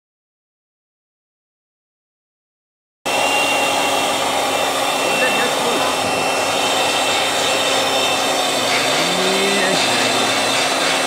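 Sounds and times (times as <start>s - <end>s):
model turbojet rushing roar: 3.1s - 11.0s
thin high whine: 3.1s - 11.0s.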